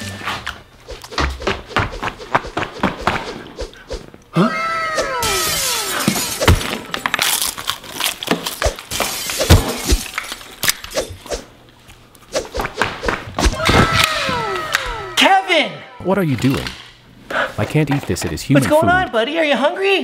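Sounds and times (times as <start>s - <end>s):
whining cry: 4.3s - 6.1s, 13.6s - 16.1s.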